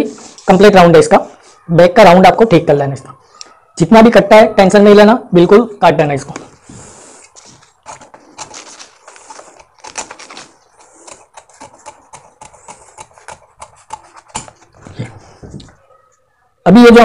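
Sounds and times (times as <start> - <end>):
paper crackles: 6.4 - 15.9
scissors snipping paper: 7.2 - 14.9.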